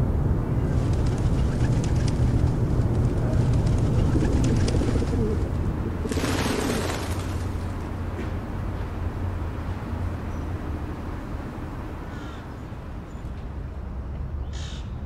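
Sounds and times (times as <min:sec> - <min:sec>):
low rumble: 0:00.0 - 0:08.1
wing flutters: 0:00.6 - 0:07.9
pigeons cooing: 0:00.7 - 0:07.8.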